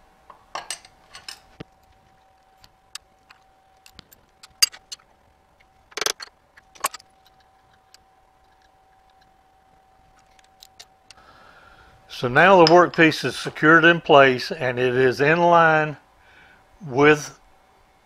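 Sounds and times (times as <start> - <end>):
faint steady hum: 0.0 - 18.0
steel clamps clinking on metal table: 0.5 - 1.5.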